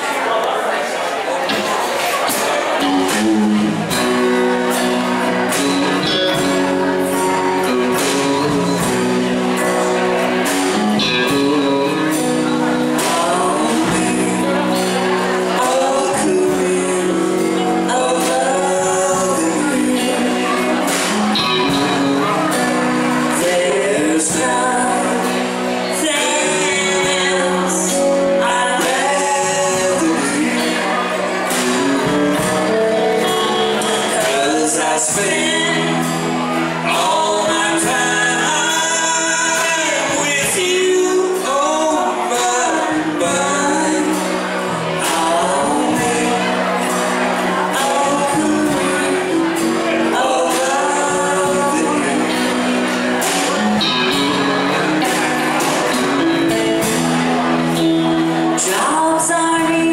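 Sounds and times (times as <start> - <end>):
drums: 0.0 - 59.9
strummed acoustic guitar: 1.4 - 59.9
electric guitar: 1.5 - 59.9
woman singing: 58.6 - 59.9.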